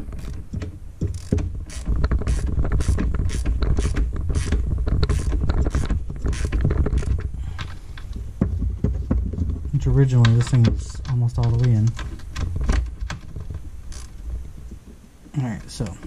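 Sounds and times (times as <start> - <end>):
low rumbling handling noise: 0.0 - 16.0
ratchet wrench clicking: 1.0 - 7.1, 13.9 - 14.1.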